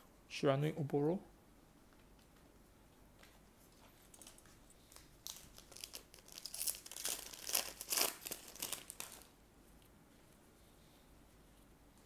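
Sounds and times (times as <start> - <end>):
foil pack tearing and crinkling: 5.2 - 9.3.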